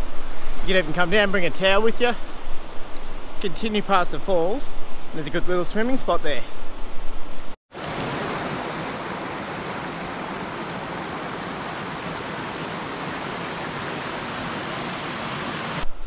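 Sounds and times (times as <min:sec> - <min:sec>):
river water over rocks: 0:07.7 - 0:15.9.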